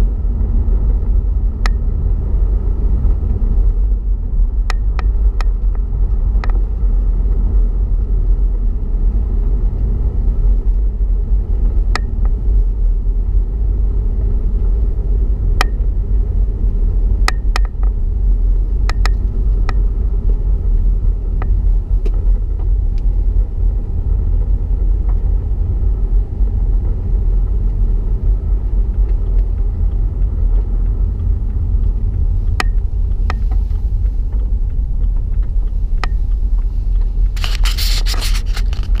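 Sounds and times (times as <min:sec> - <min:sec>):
car engine and tyre rumble: 0:00.0 - 0:39.0
crackling scrape: 0:36.2 - 0:39.0.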